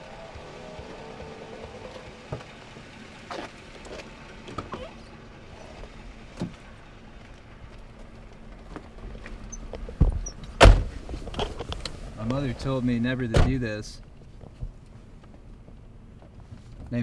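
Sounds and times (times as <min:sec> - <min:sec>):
car engine idling hum: 0:00.0 - 0:17.0
car door opening: 0:03.3 - 0:06.6, 0:08.8 - 0:12.3
knocks clicks and rustles: 0:06.3 - 0:12.4.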